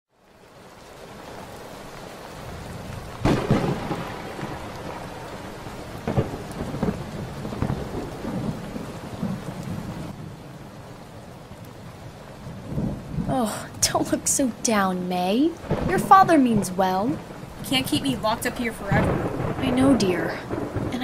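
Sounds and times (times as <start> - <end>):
steady rain: 0.1 - 21.0
thunder cracks and rumbles: 2.4 - 10.2, 12.6 - 14.3, 15.6 - 21.0.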